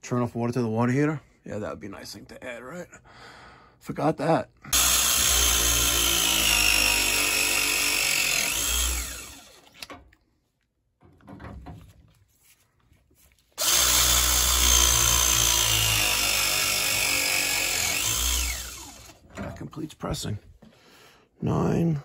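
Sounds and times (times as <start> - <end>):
pipe press tool motor whine: 4.7 - 9.9, 13.6 - 19.2.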